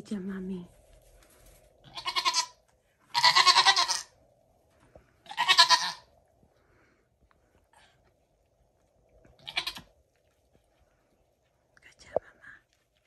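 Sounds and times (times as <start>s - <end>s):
goat bleating: 1.8s - 4.1s, 5.2s - 6.0s, 9.4s - 9.9s.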